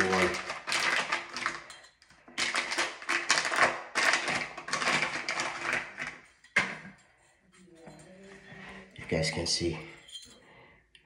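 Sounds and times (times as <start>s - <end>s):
metal parts rattling and clinking: 4.7s - 10.6s.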